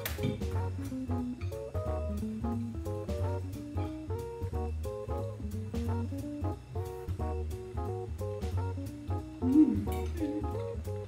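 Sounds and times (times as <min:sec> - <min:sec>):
jazzy tune with guitar and drums: 0:00.0 - 0:11.0.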